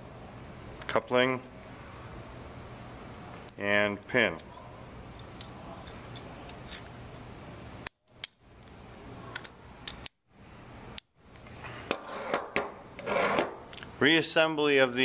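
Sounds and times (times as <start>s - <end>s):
metal parts being handled: 5.2s - 7.3s.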